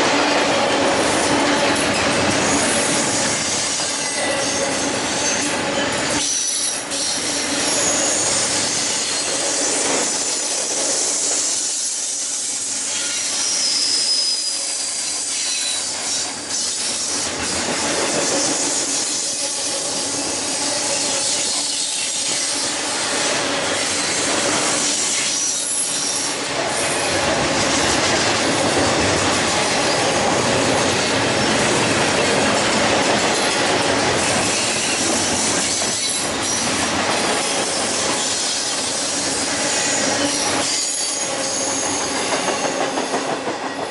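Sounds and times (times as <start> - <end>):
steel wheels clattering on rail: 0.0 - 43.9
high-pitched wheel squeals: 11.5 - 16.0.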